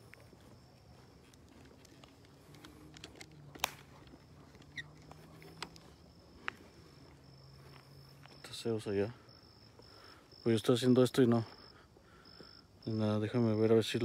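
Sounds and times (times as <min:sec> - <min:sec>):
cricket trilling: 0:00.0 - 0:14.0
footsteps on dirt road: 0:00.0 - 0:14.0
sharp click: 0:03.0 - 0:03.8.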